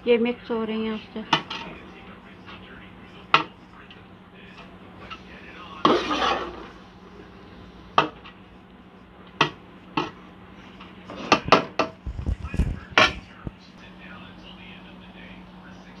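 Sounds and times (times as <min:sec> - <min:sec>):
utensil scraping metal pot: 0:05.0 - 0:06.8.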